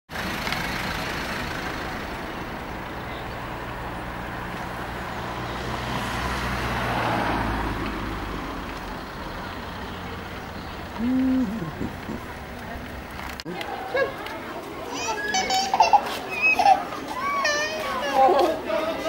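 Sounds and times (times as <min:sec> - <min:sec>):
vehicle engine humming: 0:00.1 - 0:13.6
vehicle passing: 0:00.1 - 0:13.7
traffic noise: 0:00.1 - 0:19.0.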